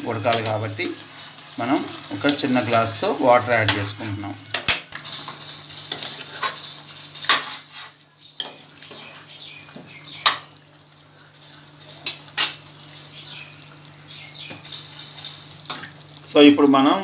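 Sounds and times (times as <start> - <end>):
curry scraping and bubbling: 10.6 - 16.3.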